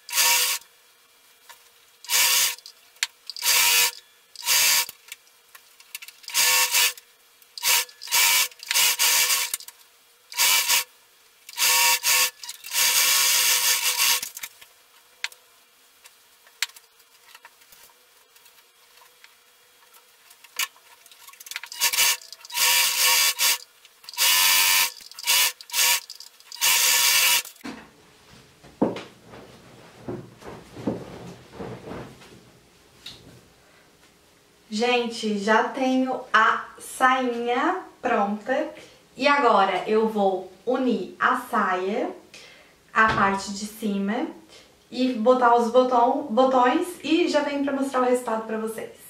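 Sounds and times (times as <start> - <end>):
electric sewing machine stitching: 0.0 - 0.6, 2.1 - 2.7, 3.3 - 4.9, 6.2 - 7.0, 7.6 - 9.7, 10.3 - 10.9, 11.5 - 14.4, 21.6 - 27.6.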